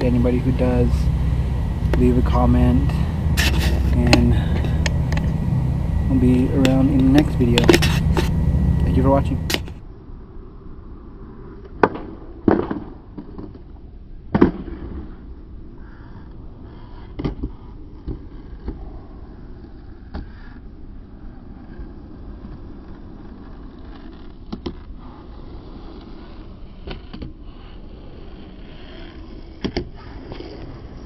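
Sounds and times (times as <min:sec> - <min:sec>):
wind rumbling on microphone: 0:00.0 - 0:13.1.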